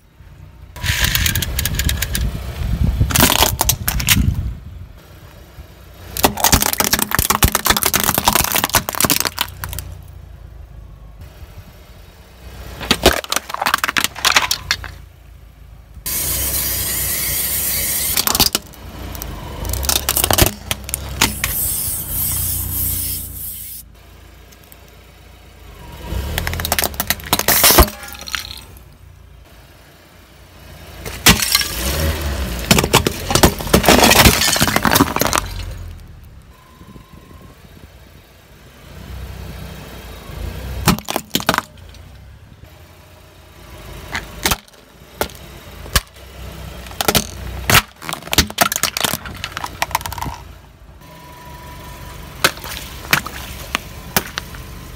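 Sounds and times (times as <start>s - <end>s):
low rumble of tyre: 0.0s - 54.9s
tyre crushing plastic and pottery: 3.1s - 4.4s, 6.1s - 10.0s, 12.8s - 15.0s, 18.1s - 21.6s, 26.3s - 28.8s, 31.0s - 36.0s, 40.8s - 42.1s, 44.1s - 46.2s, 46.8s - 50.5s, 52.4s - 54.7s.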